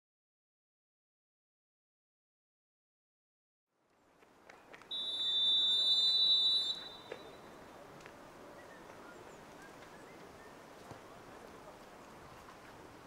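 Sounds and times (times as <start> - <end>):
referee's whistle blast: 4.9 - 7.3.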